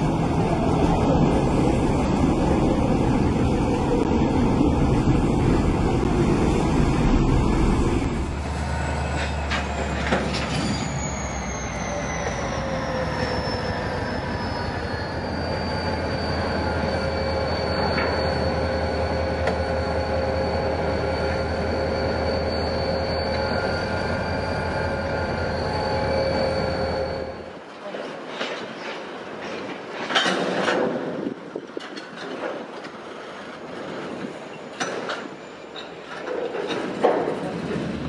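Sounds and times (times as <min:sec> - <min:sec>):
train running past: 0:00.0 - 0:38.0
train wheels squealing: 0:08.5 - 0:27.6, 0:34.0 - 0:38.0.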